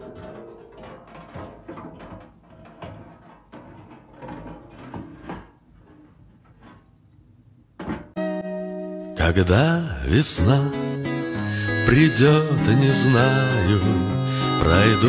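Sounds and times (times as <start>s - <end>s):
metal cover knocking and scraping: 0.0s - 7.1s, 7.8s - 8.2s.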